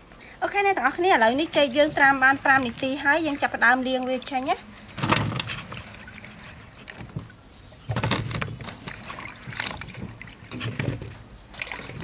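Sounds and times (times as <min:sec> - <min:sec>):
water splashing in a metal bowl: 0:01.2 - 0:07.1, 0:08.8 - 0:10.5, 0:11.5 - 0:12.0.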